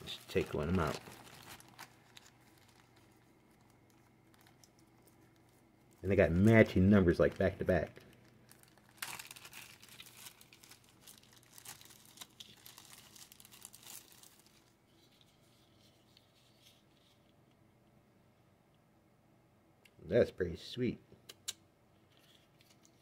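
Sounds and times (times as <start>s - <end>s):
plastic packaging crinkling: 0.0s - 17.2s.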